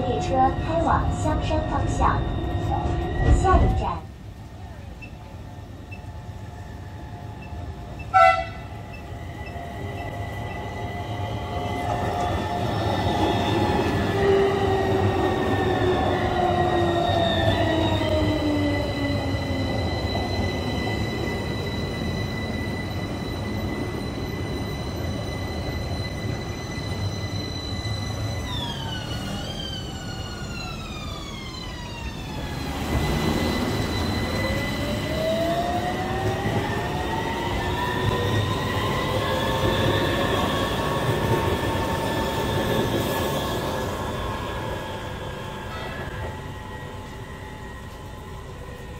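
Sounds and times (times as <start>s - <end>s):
tram motor whine: 0.0s - 48.9s
tram horn beep: 7.3s - 10.8s, 45.5s - 48.9s.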